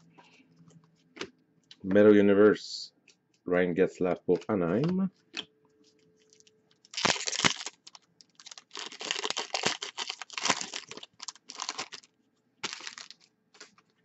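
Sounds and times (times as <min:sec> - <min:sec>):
foil wrapper tearing and crinkling: 0:06.3 - 0:13.8.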